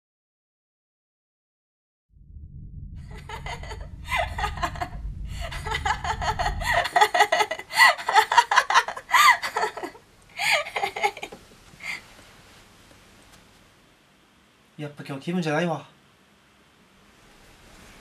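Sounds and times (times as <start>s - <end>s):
low rumble: 2.1s - 11.3s
woman giggling: 3.1s - 12.0s.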